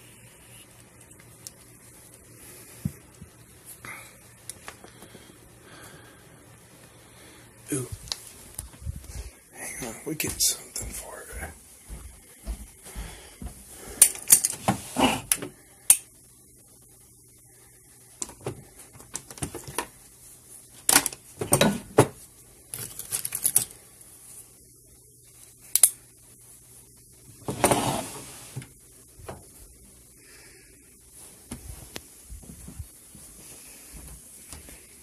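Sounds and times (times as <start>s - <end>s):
pens and markers rattling: 22.7s - 23.8s
rustling in a drawer: 27.4s - 28.7s.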